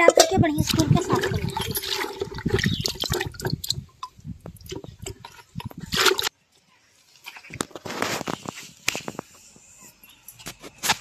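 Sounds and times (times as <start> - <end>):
water splashing in a bucket: 0.0 - 6.3.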